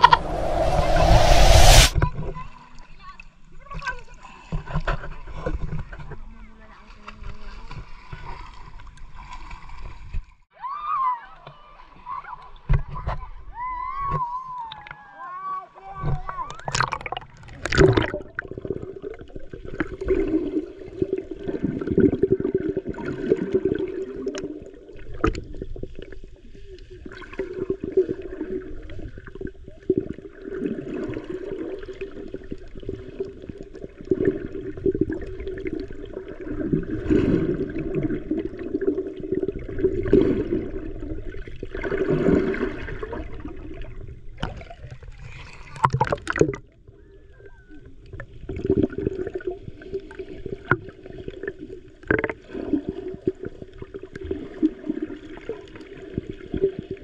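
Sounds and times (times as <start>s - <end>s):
underwater water sloshing: 0.0s - 2.4s, 16.0s - 57.0s.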